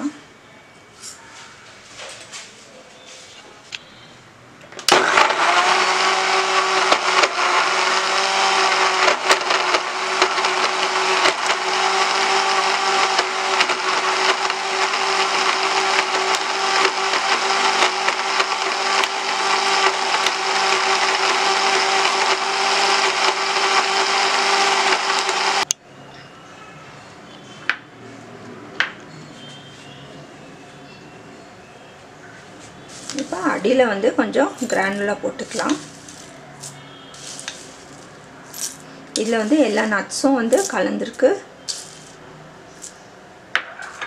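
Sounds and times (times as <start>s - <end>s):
blender running: 4.9s - 25.7s.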